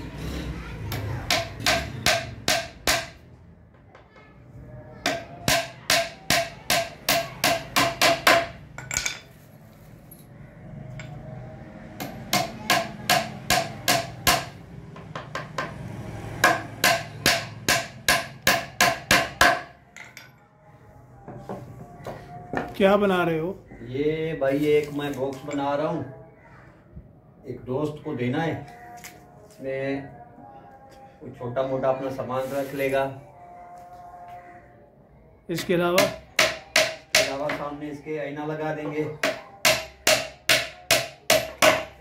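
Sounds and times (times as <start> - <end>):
hammer nailing wood: 0.9 - 3.2, 5.1 - 8.6, 12.0 - 15.8, 16.4 - 19.7, 36.0 - 37.6, 39.2 - 42.0.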